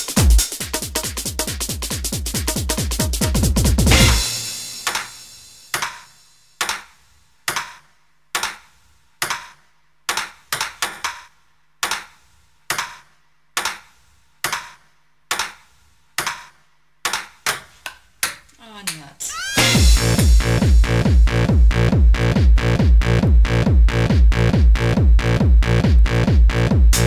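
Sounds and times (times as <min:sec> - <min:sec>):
ping-pong ball clicks: 0:14.4 - 0:15.6.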